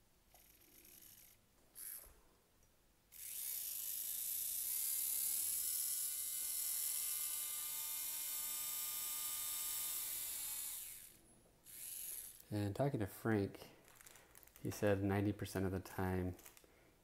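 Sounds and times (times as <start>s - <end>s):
dental drill whine: 0.4s - 2.1s, 3.1s - 12.5s.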